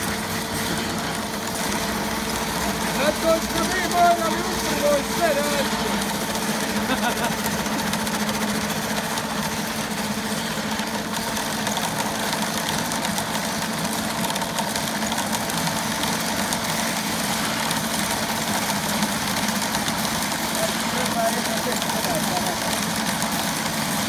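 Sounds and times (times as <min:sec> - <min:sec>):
chain saw cutting ground: 0:00.2 - 0:09.3.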